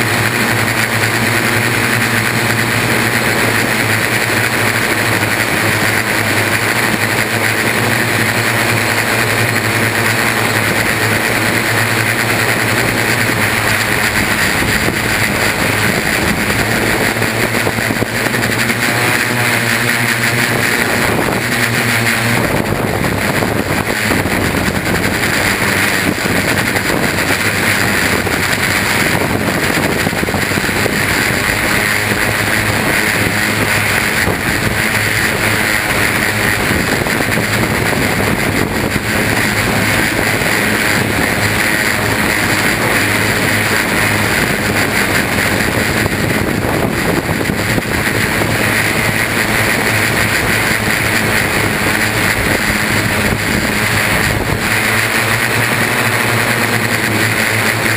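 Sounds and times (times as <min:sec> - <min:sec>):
drone propellers whirring: 0:00.0 - 0:57.9.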